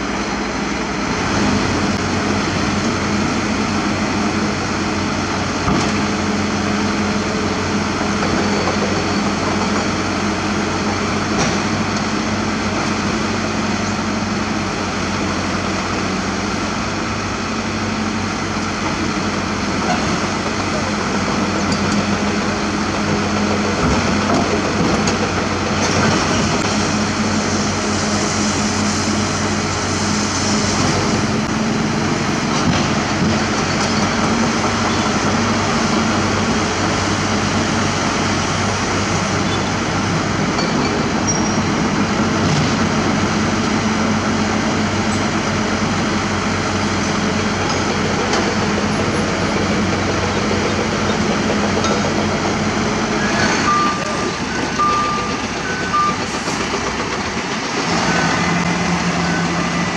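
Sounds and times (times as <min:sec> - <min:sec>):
heavy diesel engine running: 0:00.0 - 0:59.9
reversing alarm beeps: 0:53.2 - 0:56.6, 0:58.0 - 0:59.8.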